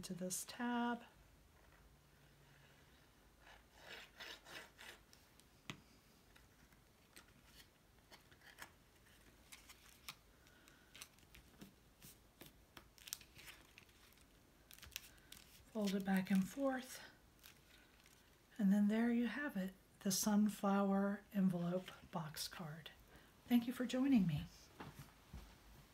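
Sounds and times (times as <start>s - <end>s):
cardstock rustling: 6.3s - 18.4s.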